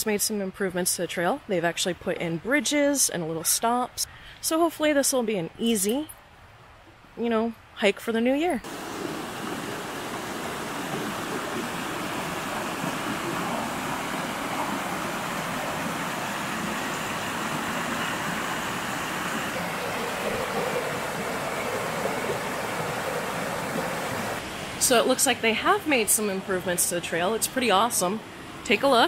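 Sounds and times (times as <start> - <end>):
creek rushing over rocks: 8.6 - 26.7.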